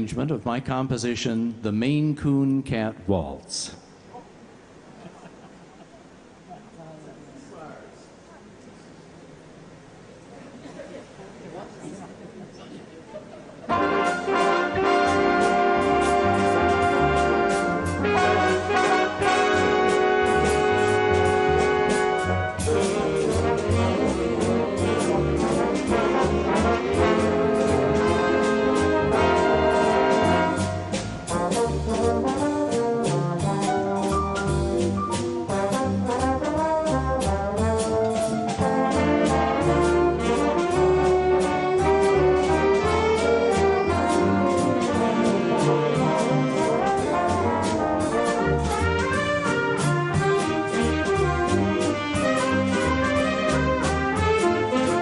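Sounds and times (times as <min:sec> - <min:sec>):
big band jazz waltz: 0:13.5 - 0:55.0.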